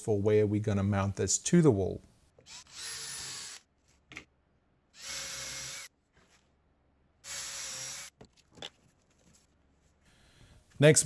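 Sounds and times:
cordless drill boring through metal: 2.4s - 3.7s, 5.0s - 5.9s, 7.2s - 8.1s.

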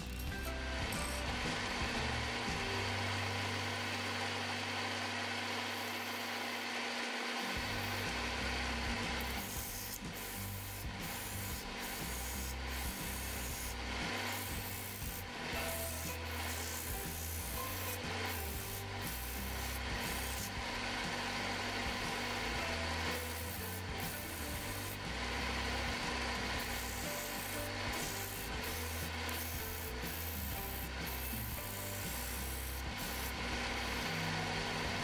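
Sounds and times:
lathe humming: 0.0s - 35.0s
sandpaper rubbing on turning wood: 9.1s - 20.6s, 22.9s - 34.2s.

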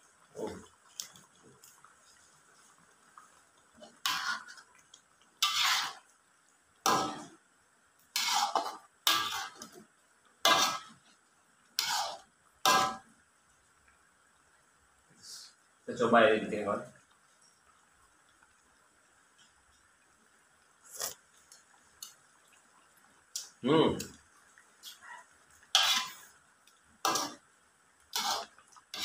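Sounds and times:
metal spatula scraping a wok: 3.8s - 4.6s, 5.4s - 6.1s, 8.1s - 9.8s, 10.4s - 11.0s, 11.8s - 13.0s, 25.7s - 26.3s, 27.0s - 27.4s, 28.1s - 29.0s.

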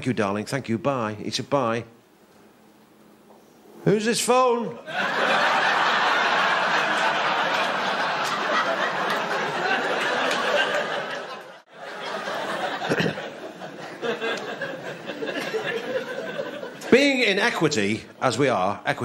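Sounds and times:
audience laughing: 4.8s - 17.0s.

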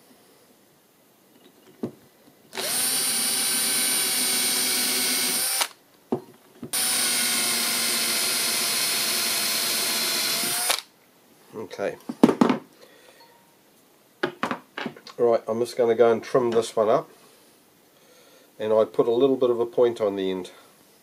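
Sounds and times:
cordless drill drilling into metal: 2.6s - 5.8s, 6.7s - 10.9s
drill trigger click: 10.4s - 10.9s.

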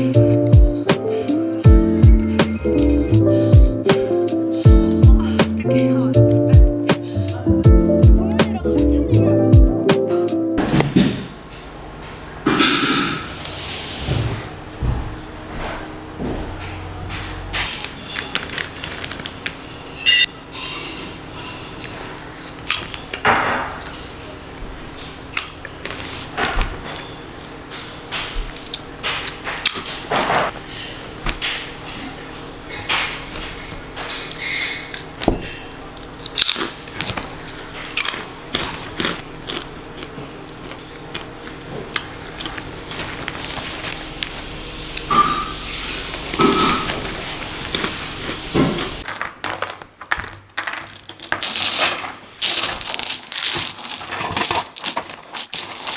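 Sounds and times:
crunching of puffed snack: 17.6s - 19.7s, 51.4s - 55.9s
person chewing crunchy snack: 35.5s - 44.1s.

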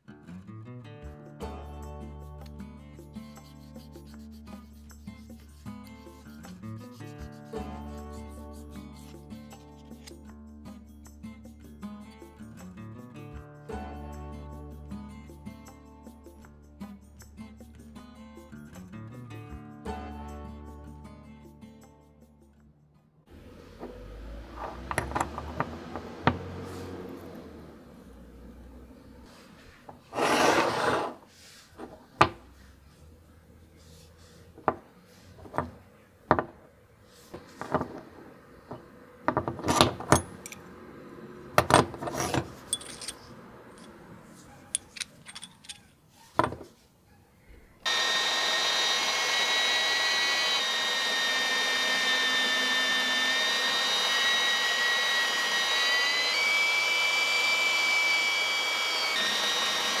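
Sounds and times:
belt sander whining: 23.3s - 29.2s, 29.9s - 31.2s, 47.9s - 60.0s
metal parts clicking on workbench: 24.6s - 25.8s, 38.7s - 40.7s, 41.6s - 44.0s, 44.6s - 46.7s
steel part grinding on belt: 30.0s - 31.2s, 41.8s - 44.0s, 50.4s - 60.0s.

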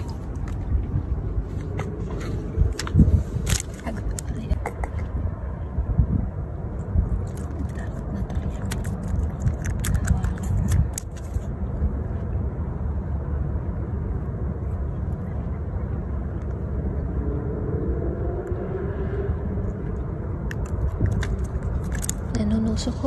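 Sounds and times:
low background rumble: 0.0s - 23.0s
fish flapping on concrete: 20.6s - 22.3s.

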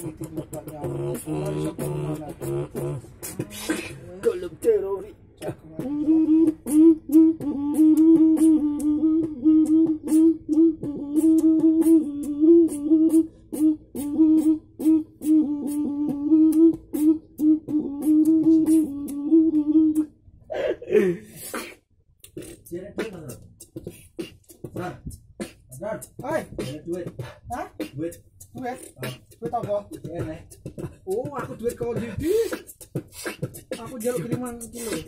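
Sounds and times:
high hi-hat-like clicks: 0.0s - 3.9s, 21.6s - 35.0s
man beatboxing hummed tone: 0.0s - 35.0s.

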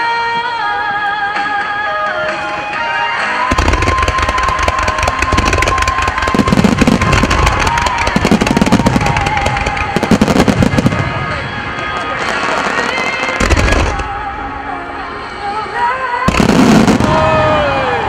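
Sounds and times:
fireworks cracking and booming: 2.4s - 14.3s, 16.3s - 18.0s.

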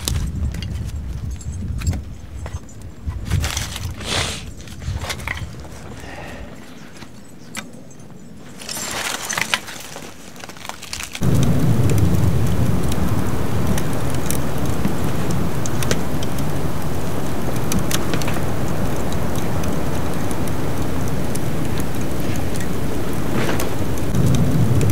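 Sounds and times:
wood fire crackling and popping: 0.0s - 24.9s
loud steady rushing noise: 11.2s - 24.9s.

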